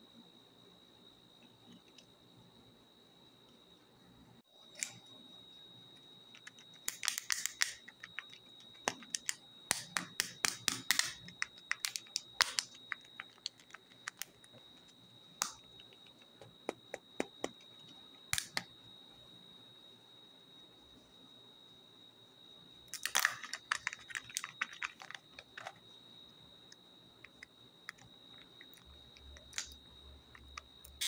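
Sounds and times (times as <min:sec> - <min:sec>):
faint high whine: 0:00.0 - 0:31.0
plastic capsules clicking and crinkling: 0:06.3 - 0:14.6, 0:18.4 - 0:18.6, 0:22.9 - 0:25.8, 0:27.3 - 0:31.0.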